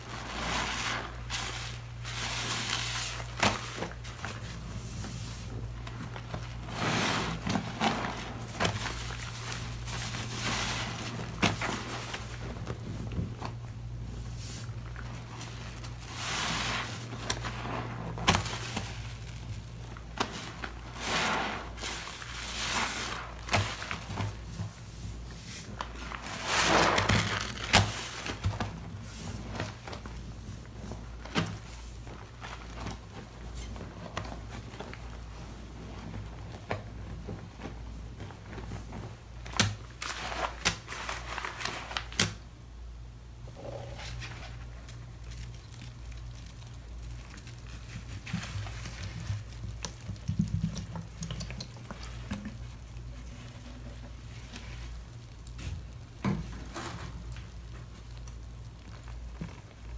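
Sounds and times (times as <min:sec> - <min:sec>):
wet squelches of sponges: 0:00.0 - 0:36.7
steady low hum: 0:42.6 - 0:59.9.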